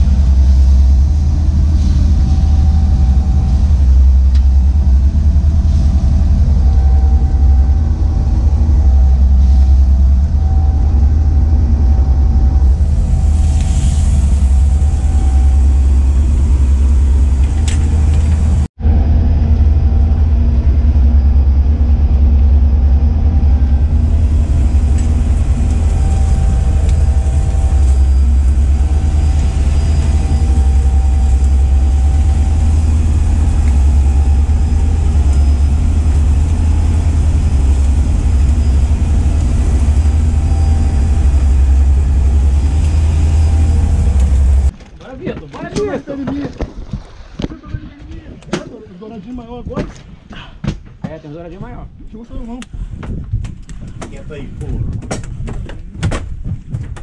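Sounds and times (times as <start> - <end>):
boat engine droning: 0.0 - 45.0.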